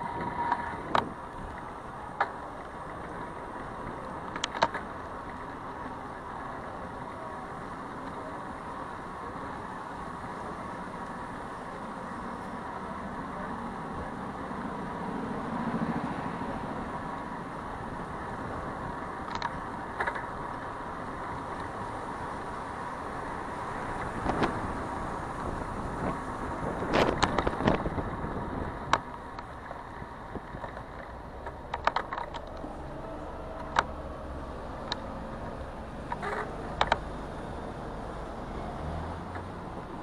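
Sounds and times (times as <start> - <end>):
city street traffic: 0.0 - 40.0
bicycle clicks and rattles: 0.2 - 5.6, 19.2 - 21.7, 26.0 - 28.0, 28.8 - 32.7, 36.0 - 37.0.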